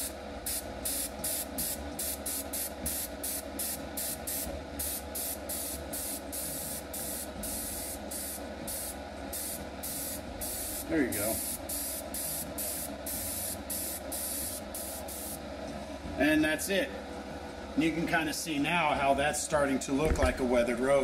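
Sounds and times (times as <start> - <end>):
airbrush spraying hiss: 0.0 - 15.4
steady low hum: 0.0 - 21.0.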